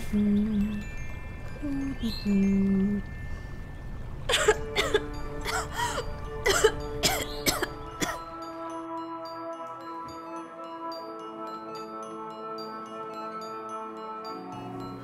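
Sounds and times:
soft background music: 0.0s - 15.0s
girl coughing: 4.3s - 8.3s.

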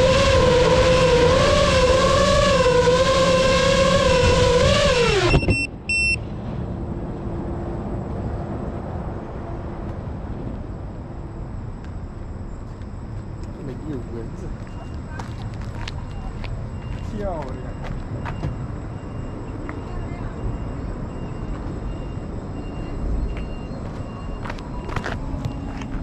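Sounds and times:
outdoor ambience: 0.0s - 26.0s
short high beeps: 5.3s - 6.2s.

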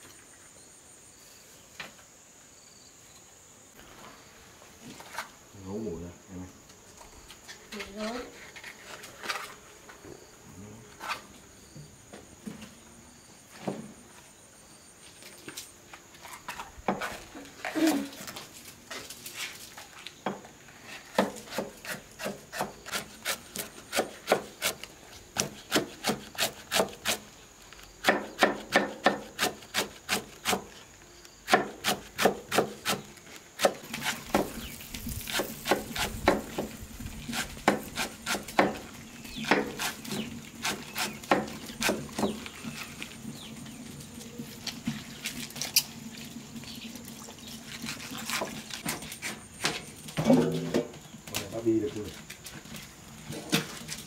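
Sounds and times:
knife chopping on wooden board: 21.1s - 24.8s, 28.0s - 30.7s, 35.3s - 36.7s, 37.3s - 38.8s, 39.4s - 42.4s.

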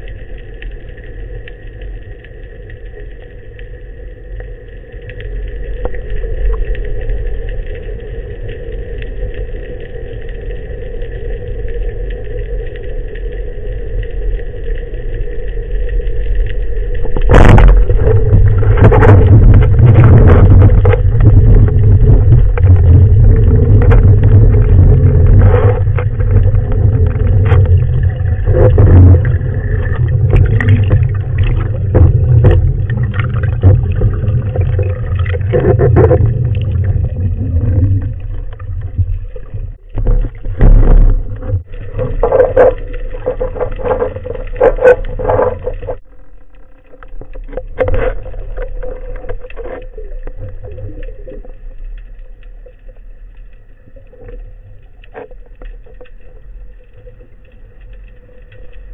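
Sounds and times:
underwater rumble of moving water: 0.0s - 58.9s.

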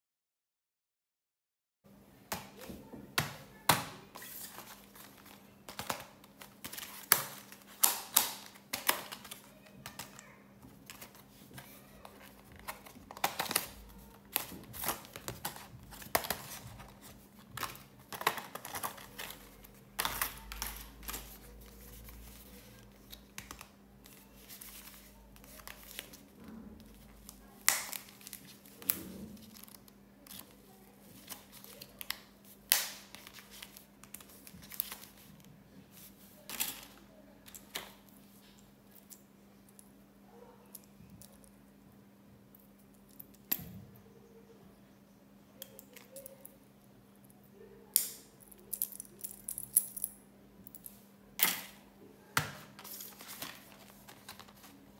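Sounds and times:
plastic blister packaging crinkling: 4.2s - 35.5s, 52.7s - 54.9s
diary pages riffled: 52.7s - 54.9s.

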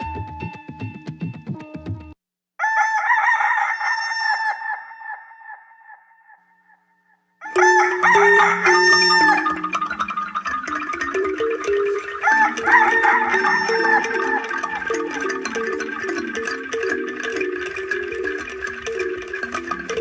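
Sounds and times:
rooster crowing: 2.6s - 6.4s, 7.4s - 10.2s, 11.0s - 16.3s.

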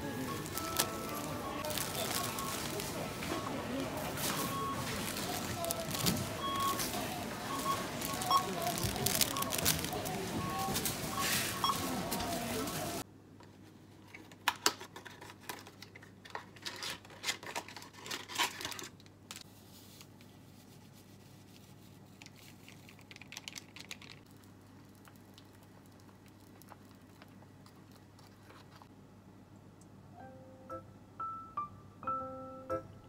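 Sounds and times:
packaging crinkling and tearing: 0.2s - 11.1s, 14.2s - 19.4s.

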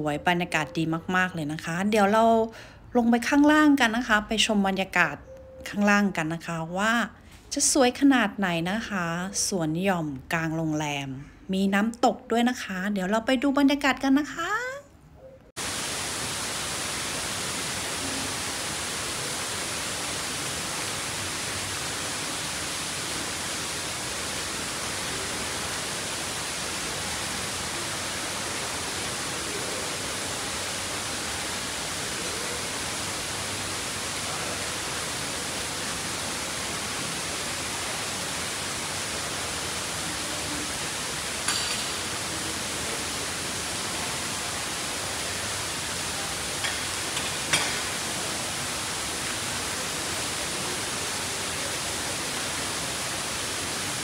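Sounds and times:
waterfall splashing into pond: 15.6s - 54.0s.

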